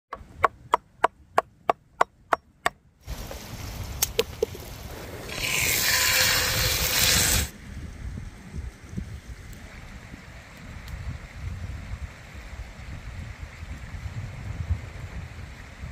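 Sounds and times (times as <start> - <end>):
loud rushing hiss: 4.6 - 7.5.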